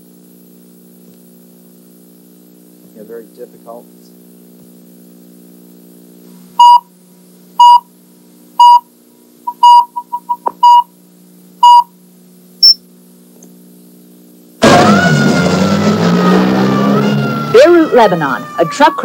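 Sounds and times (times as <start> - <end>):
low electrical hum: 0.0 - 14.6
countdown beeps: 6.6 - 6.8, 7.6 - 7.8, 8.6 - 8.8, 9.5 - 10.8, 11.6 - 11.8
short blips: 12.6 - 12.8.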